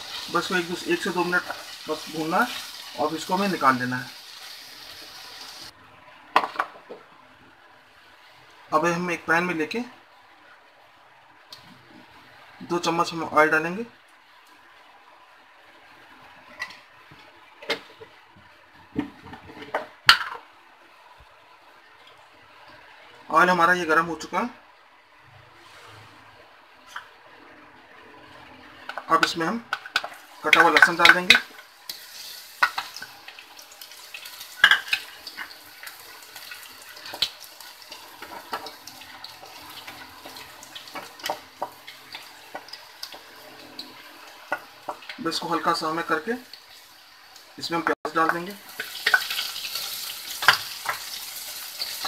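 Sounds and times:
garlic sizzling in hot oil: 0:00.0 - 0:05.7, 0:28.9 - 0:52.0
faint steady hiss: 0:00.0 - 0:52.0.

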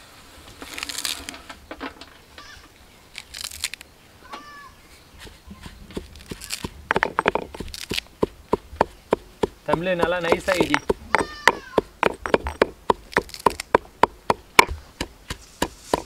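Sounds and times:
leaves rustling: 0:00.0 - 0:16.0
pestle pounding in stone mortar: 0:05.2 - 0:16.0.

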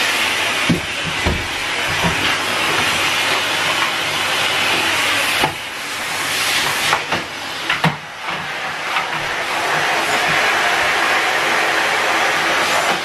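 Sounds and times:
vacuum cleaner running: 0:00.0 - 0:13.0
vacuum hose knocks: 0:00.7 - 0:02.3.

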